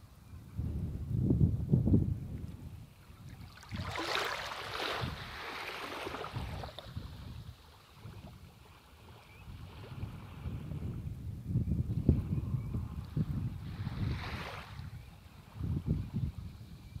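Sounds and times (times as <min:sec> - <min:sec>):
wind buffeting microphone: 0:00.0 - 0:17.0
small wave rushing in: 0:03.4 - 0:07.2
sea water washing over sand: 0:03.4 - 0:10.3.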